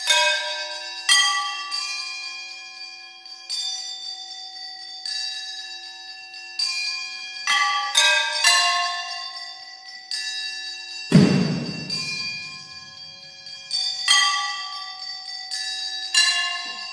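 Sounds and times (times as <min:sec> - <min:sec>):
metal objects struck ringing: 0:11.1 - 0:12.8.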